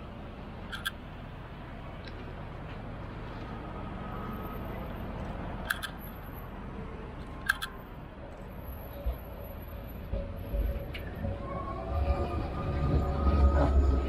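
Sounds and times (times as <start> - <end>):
tram rumbling: 0.0 - 3.6, 4.5 - 14.0
road traffic: 0.0 - 14.0
sharp clicks: 0.7 - 1.0, 5.2 - 6.1, 7.2 - 7.8.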